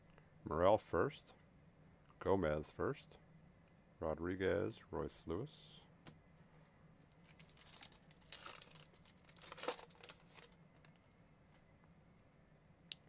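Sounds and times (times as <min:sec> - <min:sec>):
foil wrapper tearing and crinkling: 0:07.1 - 0:11.0.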